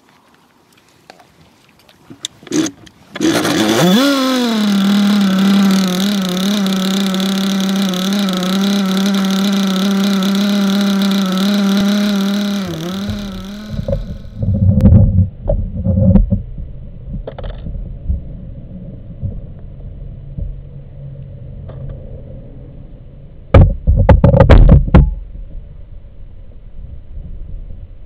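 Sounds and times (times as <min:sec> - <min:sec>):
model boat nitro engine running: 0:03.2 - 0:14.4.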